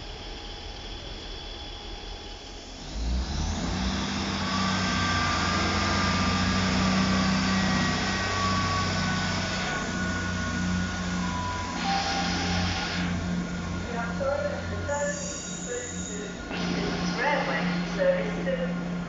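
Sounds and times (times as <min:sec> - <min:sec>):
train engines humming: 0:00.0 - 0:19.0
station ambience: 0:06.0 - 0:19.0
thin high squeals: 0:07.2 - 0:18.2.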